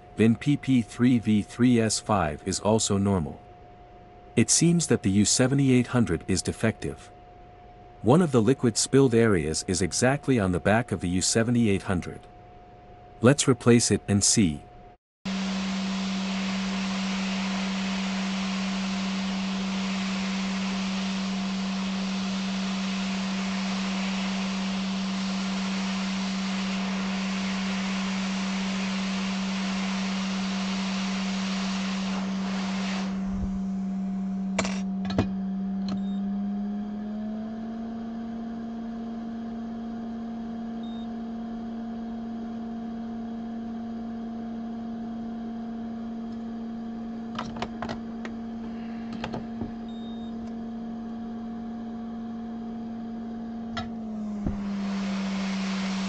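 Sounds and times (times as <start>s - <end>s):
steady machine hum: 0.0s - 56.0s
rushing air hiss: 15.3s - 33.7s, 54.5s - 56.0s.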